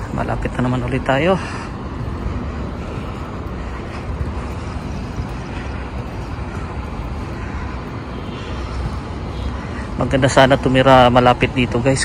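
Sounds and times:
faint city background noise: 0.0 - 12.0
wind buffeting microphone: 0.0 - 12.0.

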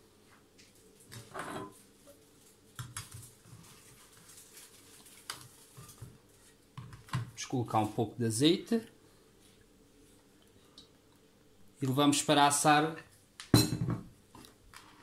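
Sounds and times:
soft rustles of meat being moved: 1.8 - 6.7
glass dish knocking and clinking: 13.6 - 14.1.

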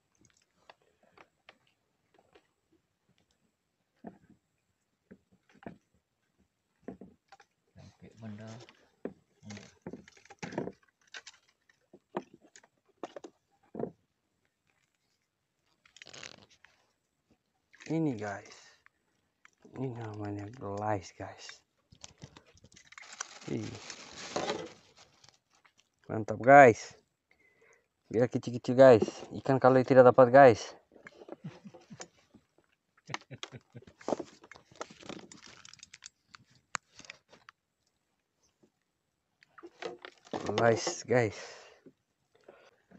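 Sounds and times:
clicks and taps in wooden boat: 5.0 - 7.6, 8.5 - 14.0, 31.0 - 37.6.

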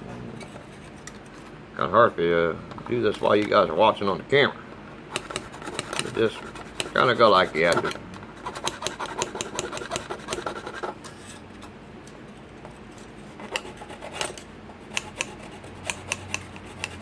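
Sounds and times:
hacksaw cutting plastic: 5.2 - 10.9, 13.5 - 17.0.

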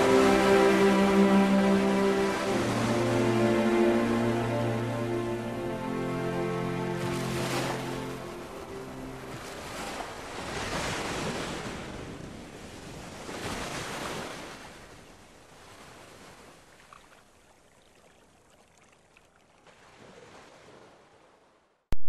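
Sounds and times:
waves washing: 0.0 - 16.8.

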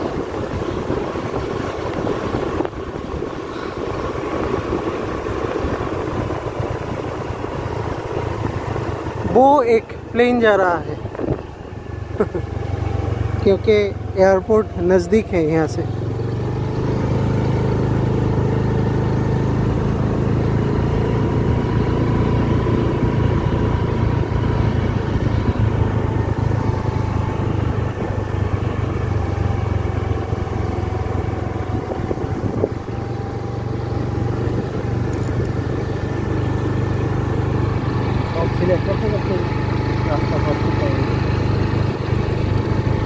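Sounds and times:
wind rumble on microphone: 0.0 - 9.4, 10.8 - 12.2, 16.0 - 38.3
motorbike engine running: 0.0 - 43.0.

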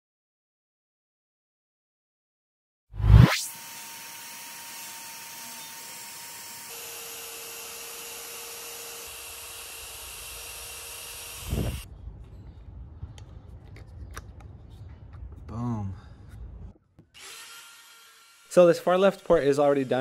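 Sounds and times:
die grinder running: 3.5 - 11.8.

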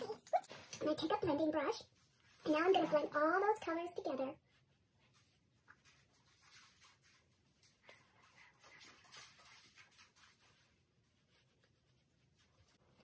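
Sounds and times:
makeup brush swishing on skin: 4.4 - 13.0.

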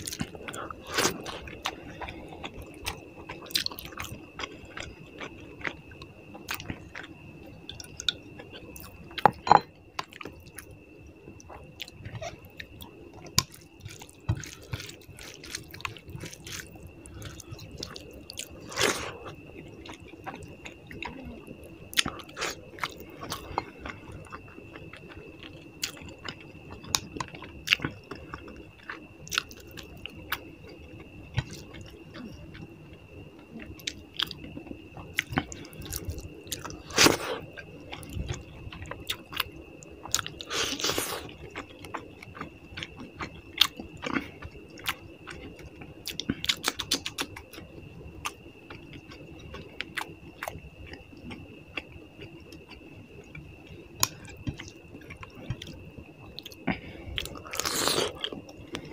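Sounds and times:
person chewing and eating: 0.0 - 10.7, 11.4 - 58.9
faint high-pitched whine: 0.0 - 58.9.

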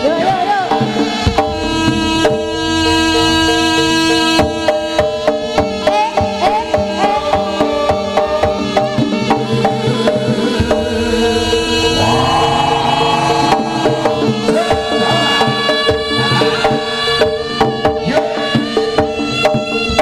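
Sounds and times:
hand drum beat: 0.0 - 20.0
wavering melody: 1.2 - 5.0, 10.2 - 16.6
sustained ringing tones: 1.3 - 4.6, 10.4 - 15.7.

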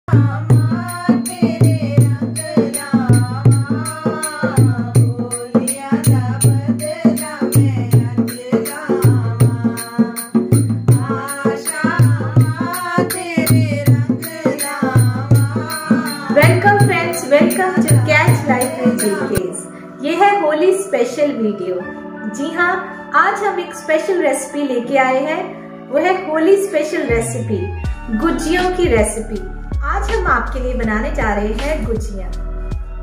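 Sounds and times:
jingling percussion: 0.1 - 19.7
song with gliding melody: 10.1 - 29.8.

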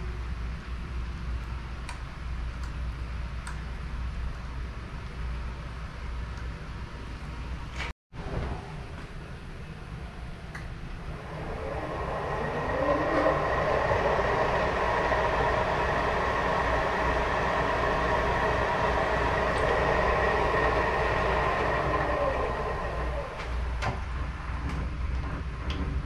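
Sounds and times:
spindle motor whining: 11.1 - 23.8.

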